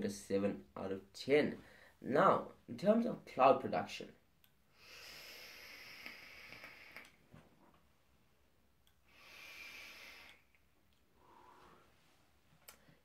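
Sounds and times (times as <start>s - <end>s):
airy hiss of vape draw: 9.1s - 10.5s.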